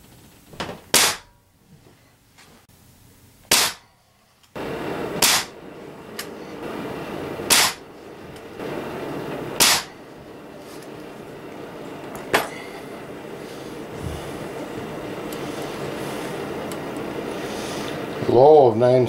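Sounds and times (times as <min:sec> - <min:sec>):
steady background noise: 0:00.0 - 0:19.0
air rifle shots cracking: 0:00.9 - 0:01.3, 0:03.5 - 0:03.9, 0:05.1 - 0:05.6, 0:07.4 - 0:07.9, 0:09.6 - 0:10.0.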